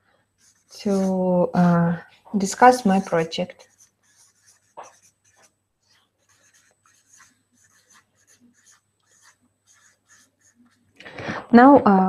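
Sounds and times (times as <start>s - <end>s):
felt-tip marker writing on paper: 0.4s - 1.2s, 3.5s - 11.0s.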